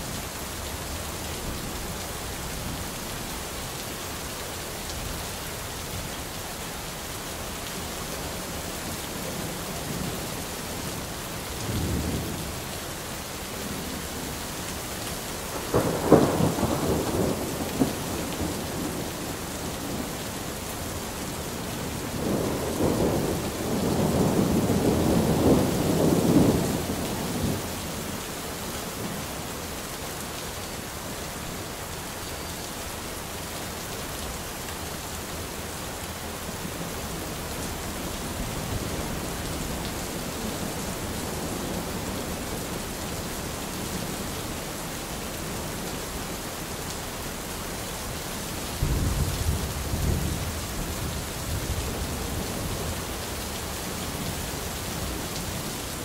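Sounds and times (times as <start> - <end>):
rain hiss: 0.0 - 56.0
thunder rumbling: 15.5 - 20.2, 21.8 - 27.7, 48.8 - 52.8.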